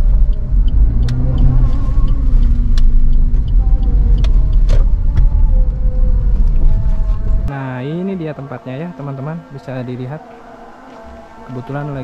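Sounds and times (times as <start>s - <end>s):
car engine and road noise: 0.0s - 7.5s.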